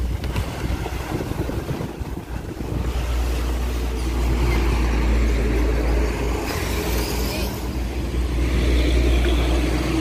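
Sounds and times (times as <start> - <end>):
wind buffeting microphone: 0.0 - 6.4
vehicle engine rumble: 0.0 - 10.0.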